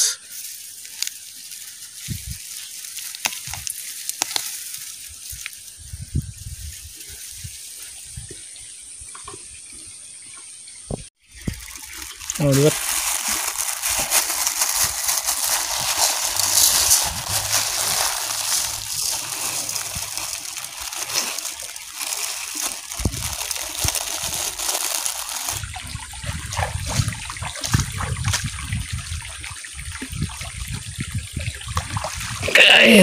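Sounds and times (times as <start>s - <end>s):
water sloshing and splashing: 0.3s - 5.8s, 6.4s - 32.8s
rice pouring into metal wok: 11.6s - 25.6s.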